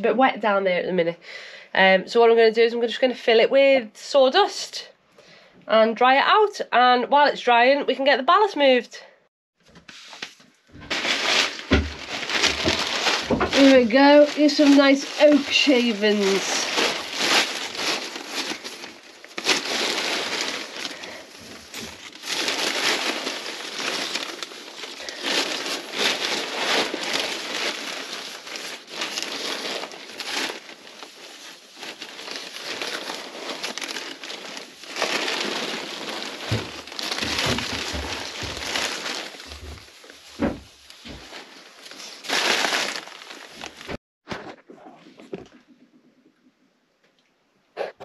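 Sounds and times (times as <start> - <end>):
wood shavings rustling and pattering: 9.8 - 44.0
cloth bag crinkling: 9.9 - 44.0.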